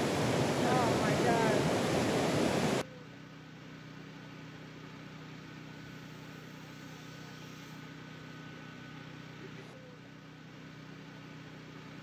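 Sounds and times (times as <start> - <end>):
faint mechanical hum: 0.0 - 12.0.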